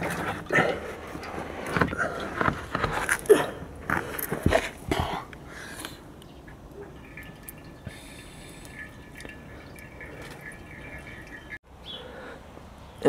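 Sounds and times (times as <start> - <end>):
oil trickling and dripping: 5.3 - 11.6.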